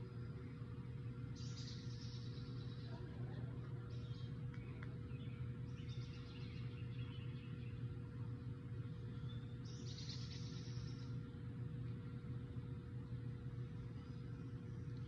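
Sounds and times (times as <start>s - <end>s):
low outdoor hum: 0.0s - 15.0s
bird chirping: 1.4s - 2.9s, 3.9s - 7.8s, 9.2s - 11.2s.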